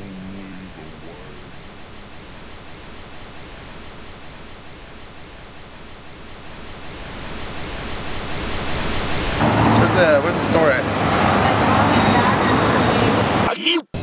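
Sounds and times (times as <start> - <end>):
steady hiss: 0.0 - 10.7.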